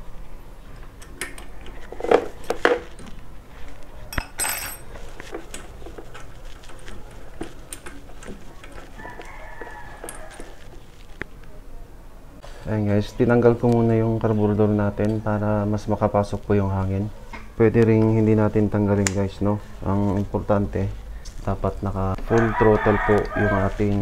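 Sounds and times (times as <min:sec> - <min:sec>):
metal tools clinking: 0:04.1 - 0:06.3.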